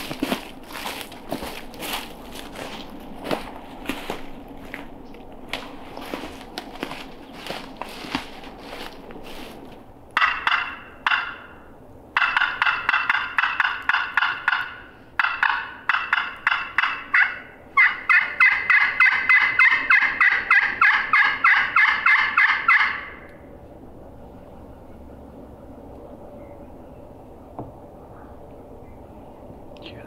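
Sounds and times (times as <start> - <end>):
turkey call yelping: 10.2 - 23.4.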